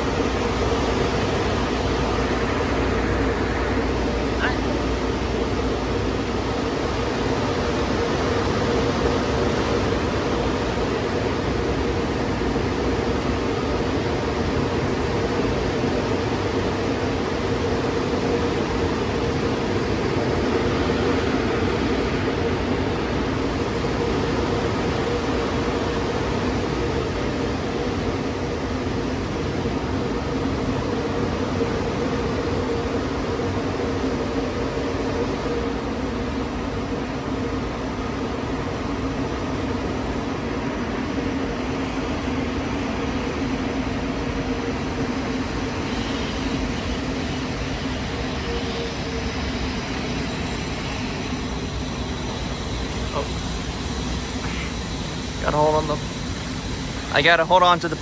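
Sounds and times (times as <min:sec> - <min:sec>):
car wash machinery drone: 0:00.0 - 0:58.0.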